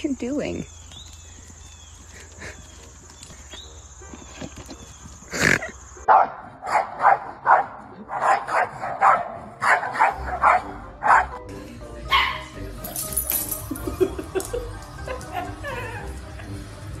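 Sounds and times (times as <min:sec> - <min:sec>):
music: 0:01.4 - 0:05.7, 0:08.7 - 0:17.0
dog barking sharply: 0:06.1 - 0:11.3.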